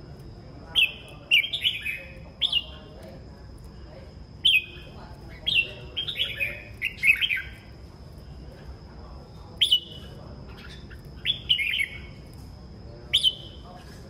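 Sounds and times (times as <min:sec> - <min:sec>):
bird whistled song: 0:00.7 - 0:02.8, 0:04.4 - 0:07.7, 0:09.6 - 0:12.2, 0:13.1 - 0:13.7
bird call: 0:04.4 - 0:07.6, 0:09.6 - 0:12.2, 0:13.1 - 0:13.7.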